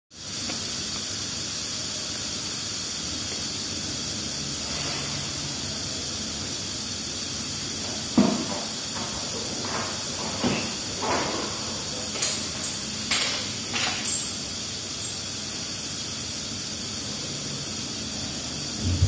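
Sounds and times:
steady hiss: 0.1 - 19.0.

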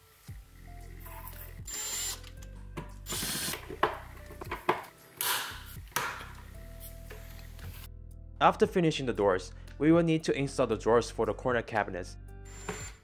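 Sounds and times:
background music: 0.0 - 13.0
screwdriver grinding screws: 1.4 - 2.4, 3.1 - 3.6, 12.5 - 13.0.

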